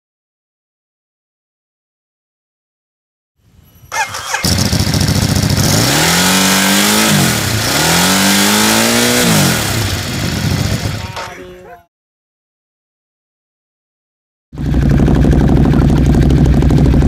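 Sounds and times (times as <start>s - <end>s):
motorcycle engine revving: 3.9s - 11.4s, 14.6s - 17.0s.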